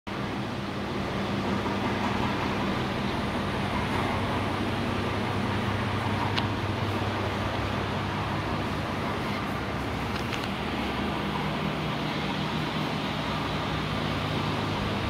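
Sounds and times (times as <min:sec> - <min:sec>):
steady low hum: 0:00.1 - 0:15.0.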